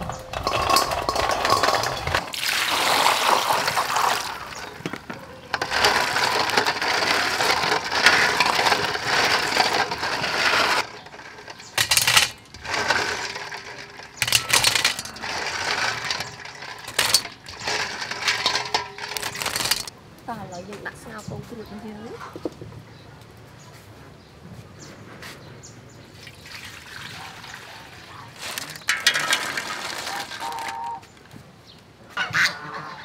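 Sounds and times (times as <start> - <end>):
eggs clattering in a metal bowl: 0.0 - 19.9, 26.4 - 31.1
eggs rattling in a metal colander: 0.0 - 19.9, 26.6 - 31.0.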